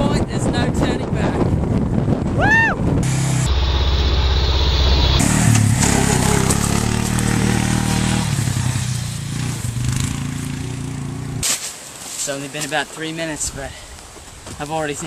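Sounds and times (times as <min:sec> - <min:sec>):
vehicle engine running loudly: 0:03.0 - 0:09.7.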